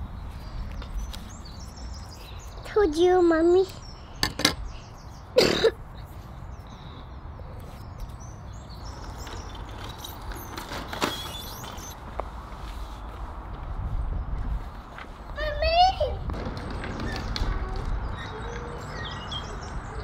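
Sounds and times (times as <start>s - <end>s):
wind buffeting microphone: 13.2s - 20.0s.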